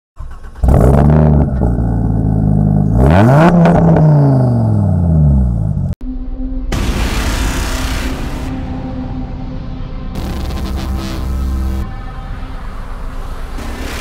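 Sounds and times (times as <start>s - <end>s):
car engine revving: 0.2s - 6.0s, 10.1s - 11.9s.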